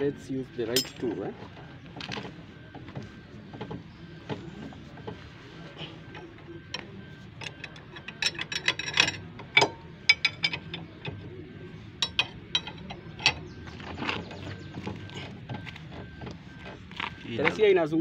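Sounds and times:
spanner clicking on metal bolt: 7.4s - 10.8s.

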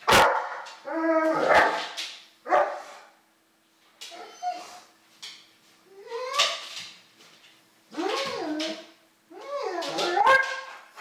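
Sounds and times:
dog barking: 0.0s - 0.6s, 2.5s - 2.9s.

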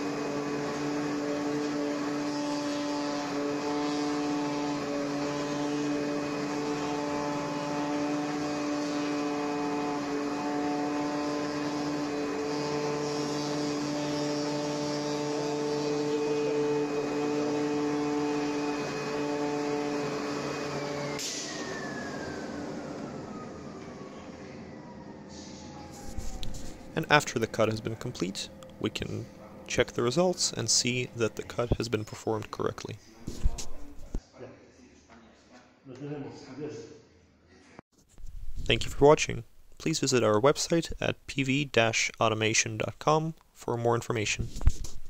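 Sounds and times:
cutting machine humming: 0.0s - 32.9s.

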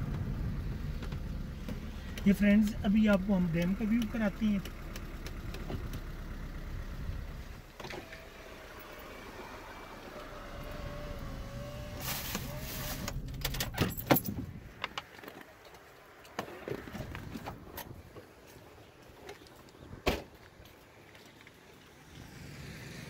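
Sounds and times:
car cabin whine: 0.0s - 14.9s.

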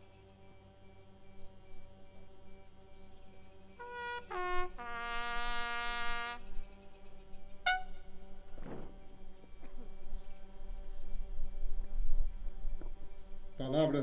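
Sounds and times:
bugle call: 3.8s - 6.4s, 7.6s - 8.1s.

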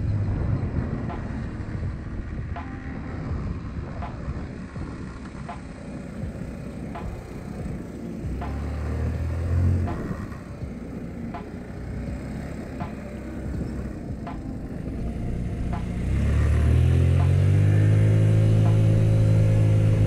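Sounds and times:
scooter engine running: 0.0s - 20.0s
wind on microphone: 0.0s - 20.0s.

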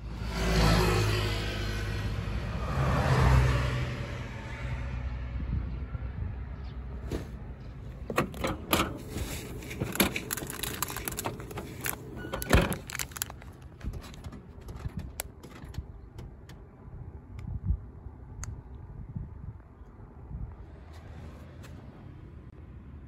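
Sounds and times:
plastic packet rustling: 9.1s - 14.2s.

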